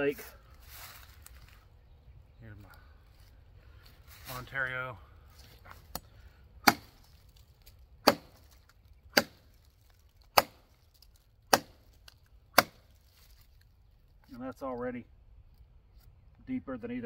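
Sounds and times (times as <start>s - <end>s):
machete chopping into log: 6.6s - 7.1s, 8.0s - 8.5s, 9.1s - 9.6s, 10.3s - 10.7s, 11.5s - 11.8s, 12.5s - 12.9s.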